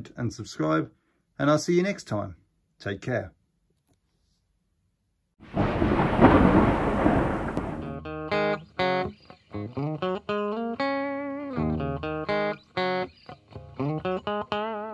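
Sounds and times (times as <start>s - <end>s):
loud burst of noise: 5.5s - 7.9s
guitar music: 7.8s - 14.9s.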